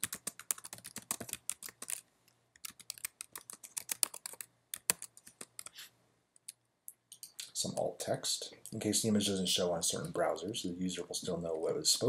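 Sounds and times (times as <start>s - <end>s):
typing on a computer keyboard: 0.0s - 2.0s, 2.6s - 5.8s.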